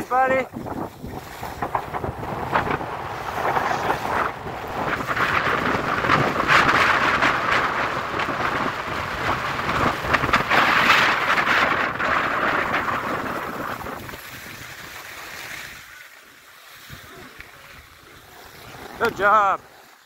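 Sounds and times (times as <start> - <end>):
wind on microphone: 0.0 - 15.9
skis scraping on snow: 0.7 - 15.6.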